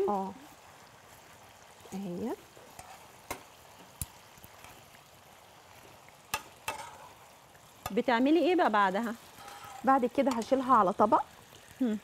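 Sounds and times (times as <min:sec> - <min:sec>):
meat sizzling in a pan: 0:00.0 - 0:12.0
metal tongs clicking on pan: 0:06.3 - 0:07.1, 0:09.4 - 0:10.8.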